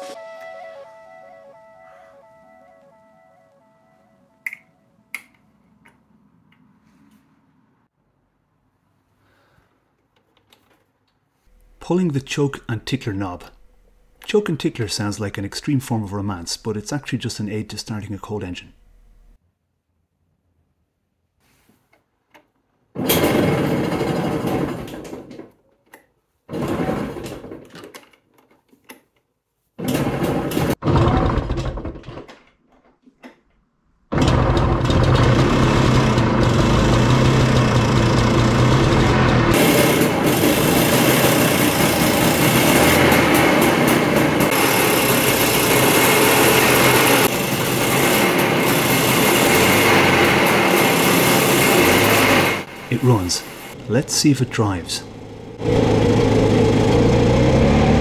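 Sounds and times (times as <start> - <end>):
electric starter cranking: 23.0 - 25.4, 29.8 - 32.1, 34.1 - 58.0
scooter engine running: 34.1 - 58.0.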